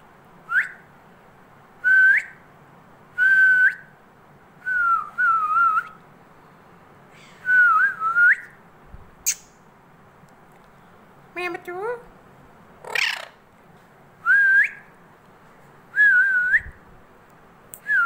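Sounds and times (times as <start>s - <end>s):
short upward-flicking whistles: 9.3s - 9.6s.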